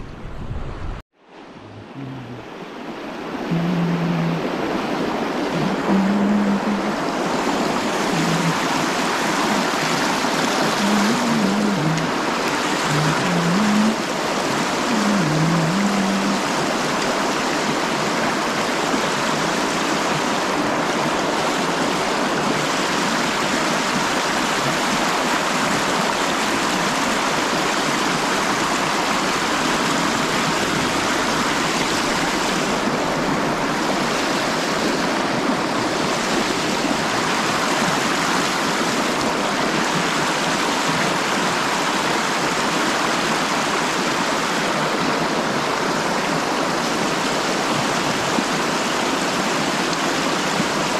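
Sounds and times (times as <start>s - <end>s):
water rushing over rocks: 0.5s - 50.9s.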